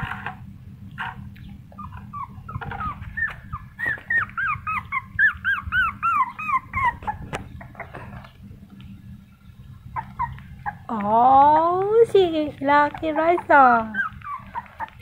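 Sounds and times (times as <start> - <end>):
puppy whimpering squeals: 1.7 - 8.3, 9.9 - 11.0, 12.8 - 15.0.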